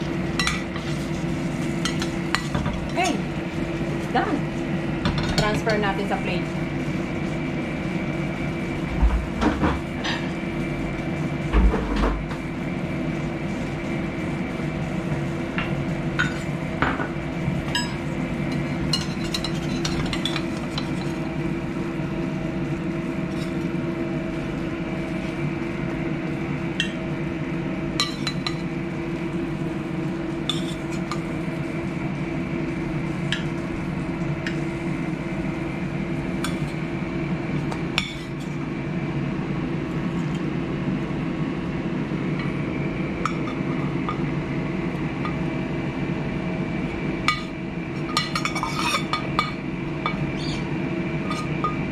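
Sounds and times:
steady hum: 0.0s - 51.9s
metal spatula scraping pan: 48.3s - 49.2s.

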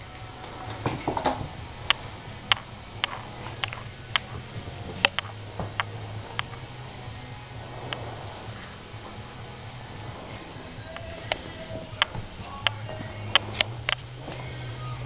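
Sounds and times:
rustle of scuffling: 0.0s - 15.0s.

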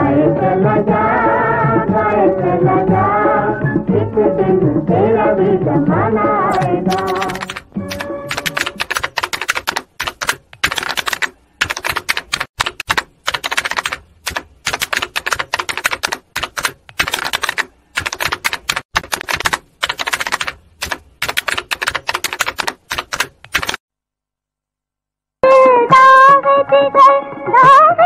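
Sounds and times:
old film soundtrack crackling: 6.3s - 23.8s.

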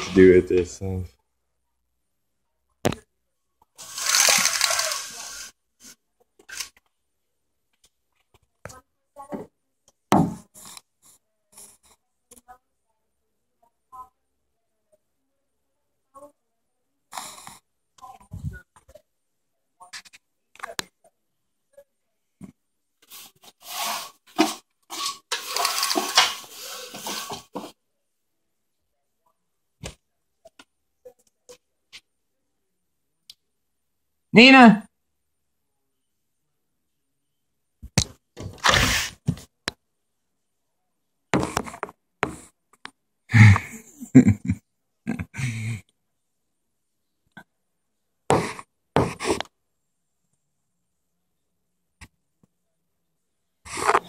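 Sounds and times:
rustling: 3.8s - 5.5s, 23.0s - 27.7s
window blind slats rattling: 3.8s - 5.5s, 23.7s - 27.5s.

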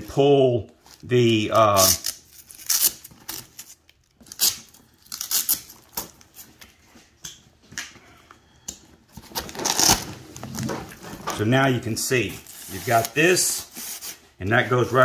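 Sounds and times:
velcro ripping: 1.6s - 6.1s, 9.4s - 10.2s, 12.4s - 14.2s.

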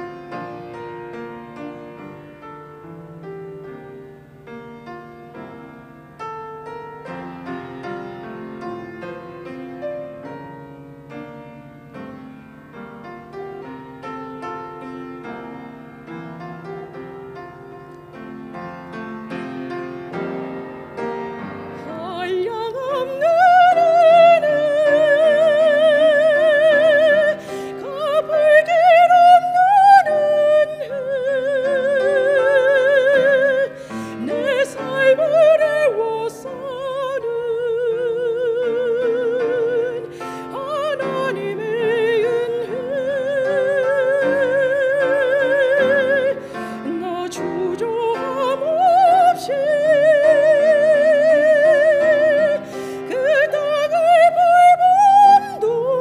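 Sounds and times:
soft piano accompaniment: 0.0s - 56.0s
woman singing a hymn: 21.4s - 56.0s.

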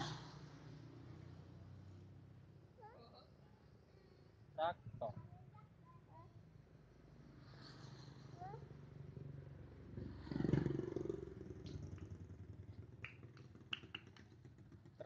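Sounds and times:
motor vehicle passing: 0.0s - 2.5s, 7.0s - 15.0s.

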